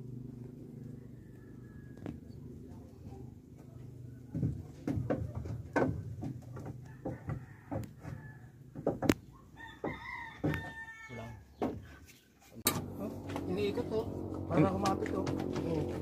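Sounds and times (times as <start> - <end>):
rooster crowing: 0.8 - 2.4, 6.8 - 8.6, 9.6 - 11.5
knocks and taps on wood: 4.3 - 10.7, 11.6 - 11.9.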